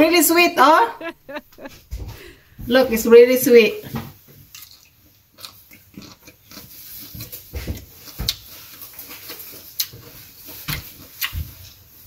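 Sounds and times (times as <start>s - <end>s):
person chewing and lip-smacking: 4.5s - 11.7s.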